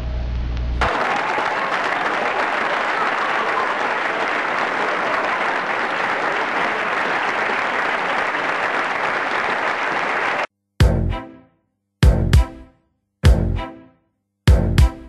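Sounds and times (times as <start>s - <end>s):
audience applause: 0.8s - 10.5s.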